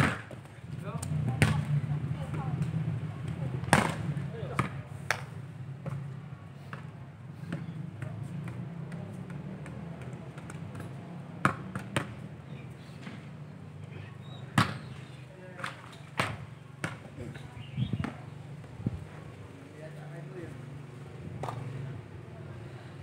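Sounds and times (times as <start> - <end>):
football being kicked: 1.3 - 1.7, 3.6 - 4.8, 14.5 - 14.9.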